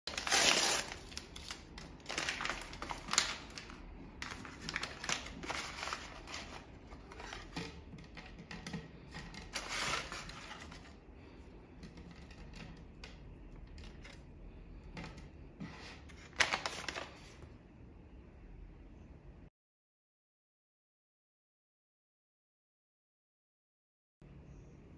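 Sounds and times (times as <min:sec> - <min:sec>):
gum pouch crinkling: 0:00.1 - 0:07.6.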